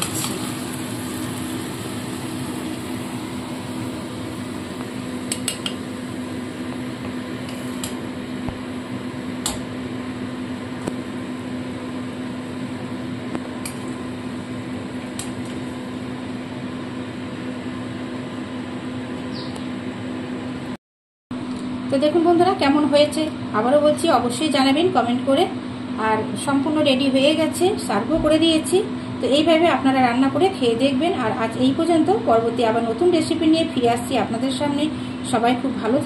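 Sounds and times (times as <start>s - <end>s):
steady low hum: 0.0s - 20.8s.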